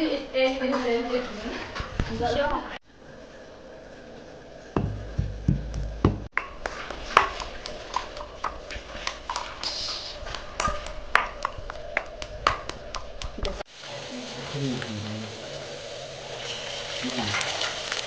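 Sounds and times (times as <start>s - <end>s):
pestle pounding in ceramic mortar: 4.8s - 9.6s.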